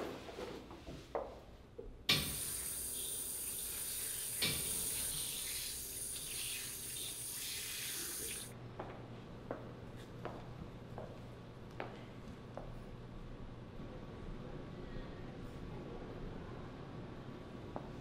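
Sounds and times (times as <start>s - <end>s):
tap water splashing into sink: 2.1s - 8.5s.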